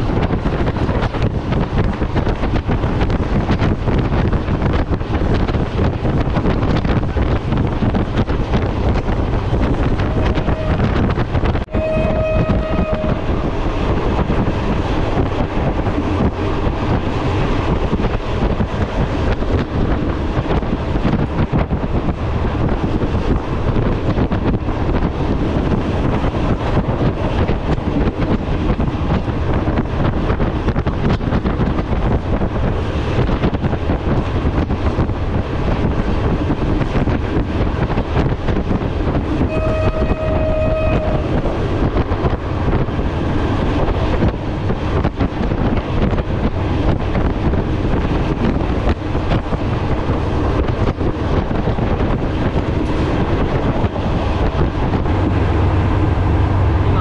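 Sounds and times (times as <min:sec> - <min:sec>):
train wheels and rushing air: 0:00.0 - 0:57.0
train horn: 0:10.0 - 0:13.5, 0:39.4 - 0:41.4.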